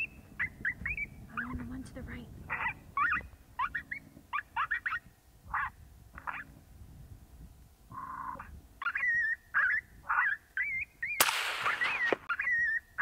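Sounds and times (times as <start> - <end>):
high wavering yelping cries: 2.5 - 6.5, 7.9 - 13.0
suppressed rifle shot: 11.1 - 12.3.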